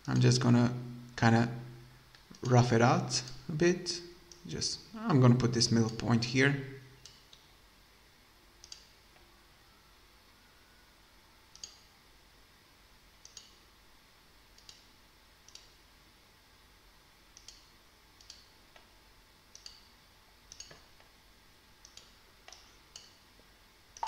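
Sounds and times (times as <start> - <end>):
computer mouse clicking: 8.6 - 8.9, 11.5 - 11.9, 13.2 - 13.6, 17.4 - 18.9, 20.5 - 20.9, 21.8 - 23.1.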